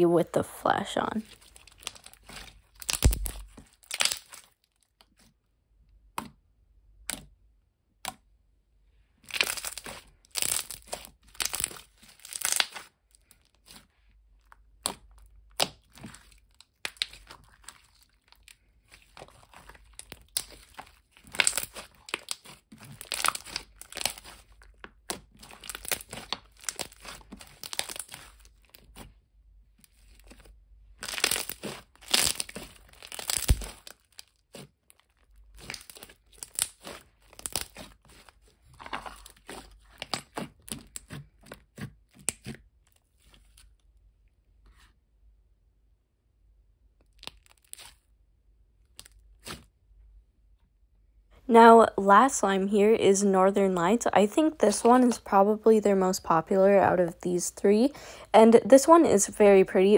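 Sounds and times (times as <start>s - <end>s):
slime squishing and crackling: 1.2s - 5.4s, 9.2s - 44.1s, 47.0s - 49.8s.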